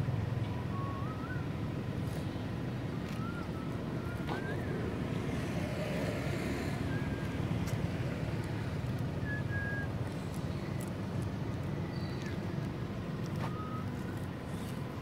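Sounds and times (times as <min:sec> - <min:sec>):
low outdoor rumble: 0:00.0 - 0:15.0
faint high whistles: 0:00.5 - 0:02.3, 0:03.0 - 0:07.8, 0:09.1 - 0:10.7, 0:13.4 - 0:14.7.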